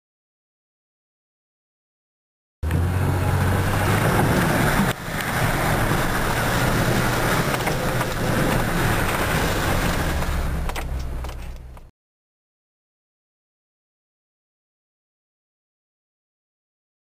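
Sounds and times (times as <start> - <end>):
car engine hum: 2.6 - 11.9
tyres rumbling on gravel: 2.6 - 11.9.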